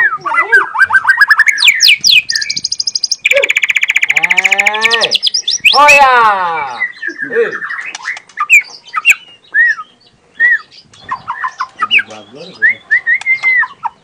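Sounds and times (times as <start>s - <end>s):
bird singing whistles and chirps: 0.0s - 5.9s, 6.5s - 14.0s.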